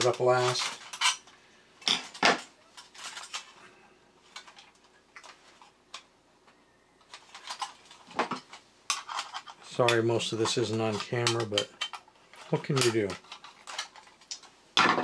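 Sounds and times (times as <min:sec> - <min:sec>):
metallic clicks and clinks: 0:00.0 - 0:02.2.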